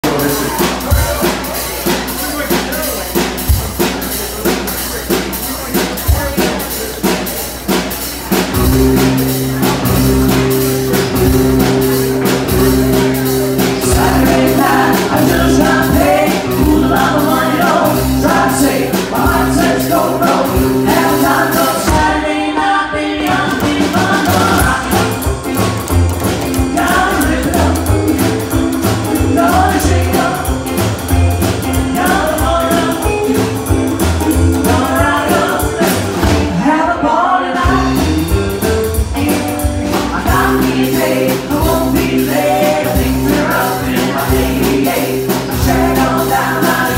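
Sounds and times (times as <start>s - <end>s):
rockabilly band playing: 0.0s - 46.9s
woman singing: 13.8s - 25.2s, 26.7s - 28.3s, 29.1s - 33.5s, 34.5s - 38.2s, 39.2s - 46.9s.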